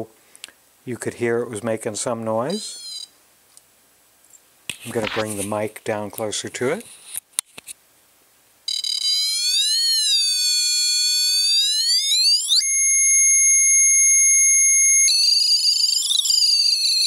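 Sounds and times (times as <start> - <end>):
buzzy wavering electronic tone: 8.7 - 17.0.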